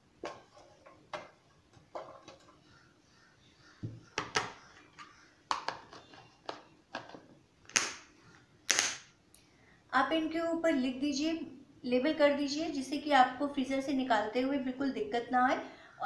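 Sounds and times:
plastic containers clacking: 3.8 - 8.1.

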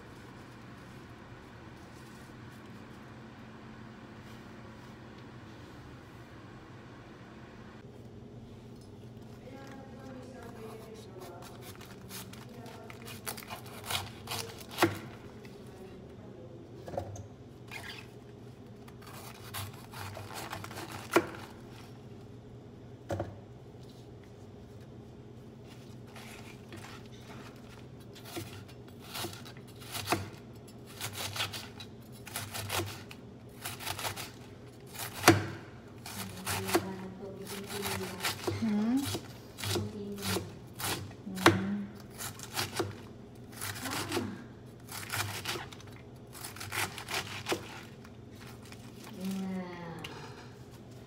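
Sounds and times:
knife shredding cabbage: 10.1 - 15.2, 18.7 - 21.9, 25.6 - 49.6.

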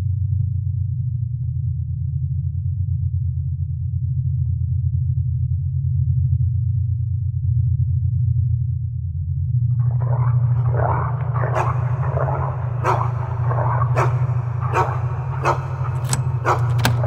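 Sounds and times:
steady low drone: 0.0 - 17.0
dogs barking and snarling: 9.8 - 17.0.

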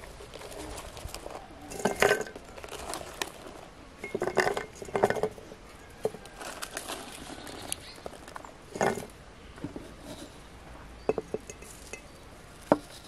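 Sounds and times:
berries clinking on glass: 1.7 - 2.7, 4.0 - 5.4, 11.0 - 12.9.

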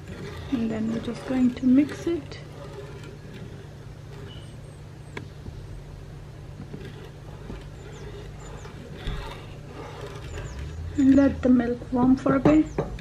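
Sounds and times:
spatula stirring in metal saucepan: 0.0 - 5.0, 6.6 - 12.4
steady low hum: 0.0 - 13.0.

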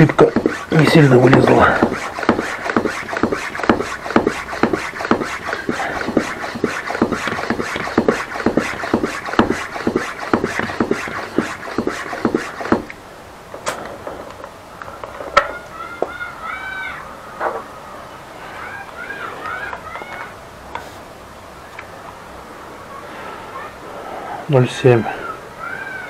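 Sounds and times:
bicycle pump strokes: 0.0 - 13.0.

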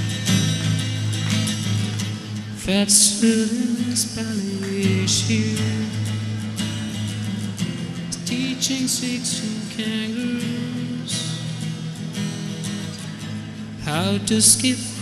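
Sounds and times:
acoustic guitar strummed and picked: 0.0 - 15.0
man singing: 2.6 - 6.1, 8.1 - 11.4, 13.8 - 15.0.

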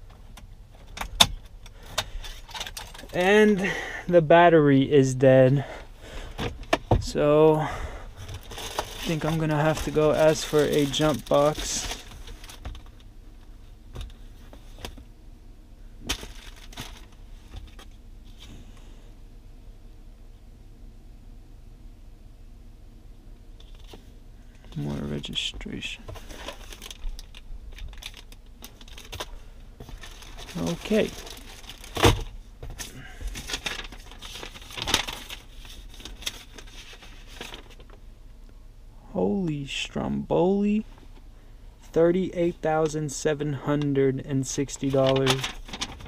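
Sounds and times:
papers and plastic sleeves handled: 8.2 - 15.0, 23.6 - 38.0, 43.8 - 46.0.

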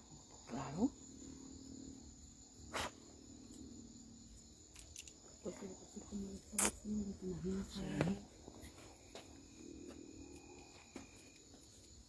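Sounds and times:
crickets trilling: 0.0 - 12.0
sharp click: 6.6 - 6.8.

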